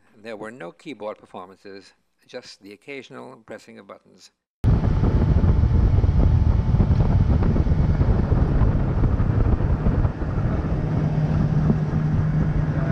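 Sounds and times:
boat motor rushing: 0:04.6 - 0:12.9
steady hum: 0:04.6 - 0:12.9
wind buffeting microphone: 0:04.6 - 0:12.9
water spraying off hull: 0:04.8 - 0:12.9.

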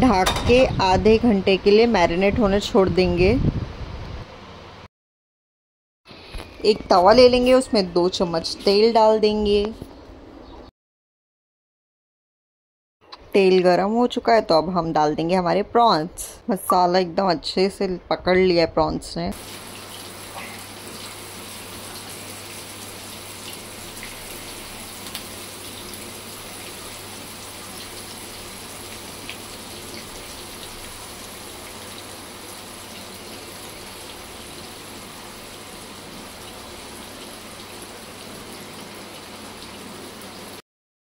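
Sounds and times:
prawns sizzling in hot oil: 0:19.3 - 0:40.6.

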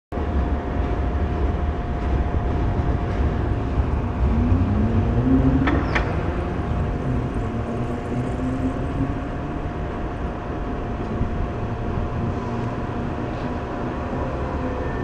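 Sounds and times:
city street traffic rumble: 0:00.1 - 0:15.0.

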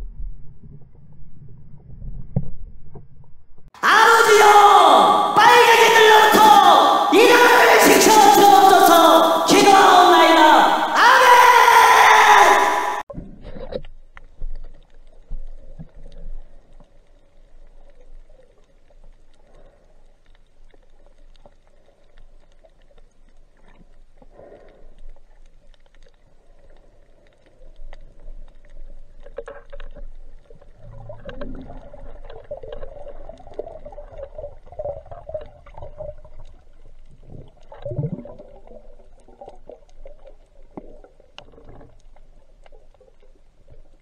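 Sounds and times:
small underwater clicks: 0:13.5 - 0:44.0.

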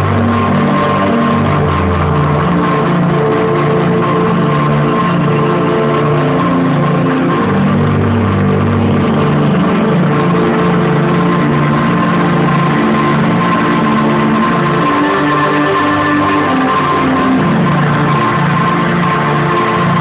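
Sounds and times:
muffled electronic dance music: 0:00.0 - 0:20.0
steady high tone: 0:00.0 - 0:20.0.

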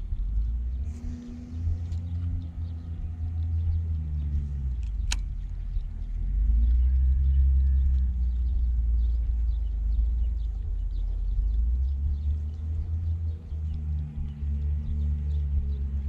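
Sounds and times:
boat motor rumbling: 0:00.0 - 0:16.0
sharp click: 0:04.7 - 0:05.9.

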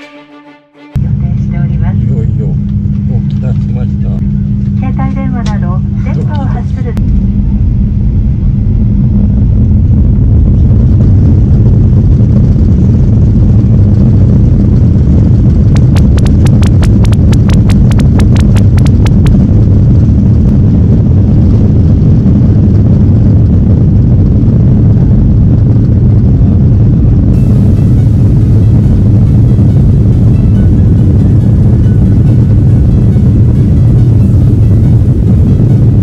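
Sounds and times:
jet engine cabin rumble: 0:01.0 - 0:36.0
rapid sharp clicks: 0:15.7 - 0:19.4.

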